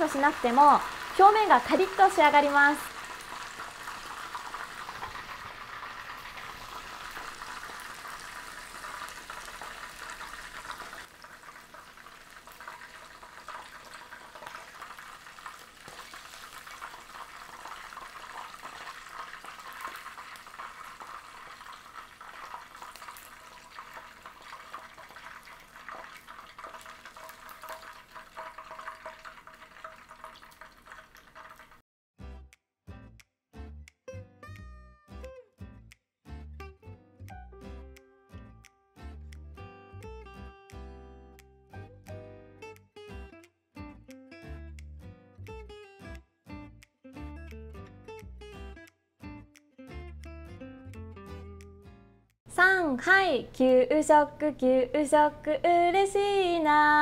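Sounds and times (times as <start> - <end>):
chicken deep-frying in oil: 0.0 - 31.8.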